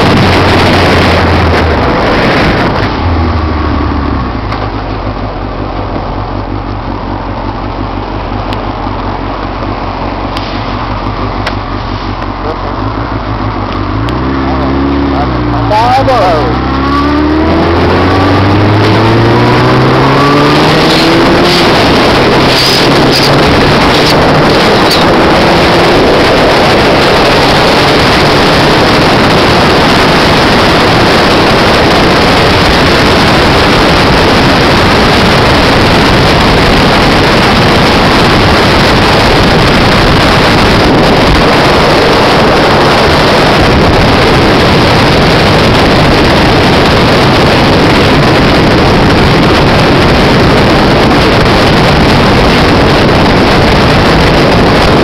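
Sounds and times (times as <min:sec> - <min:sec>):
wind buffeting microphone: 0:00.0 - 0:03.6, 0:15.1 - 0:55.0
motorcycle engine: 0:00.0 - 0:55.0.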